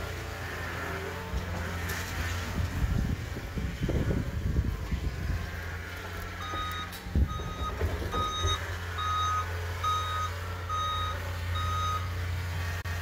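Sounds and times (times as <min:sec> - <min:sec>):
diesel engine hum: 0:00.0 - 0:13.0
backup alarm beeping: 0:06.4 - 0:12.2.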